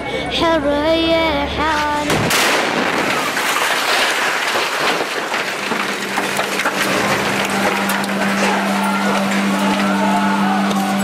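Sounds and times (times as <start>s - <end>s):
debris raining down: 2.1s - 11.0s.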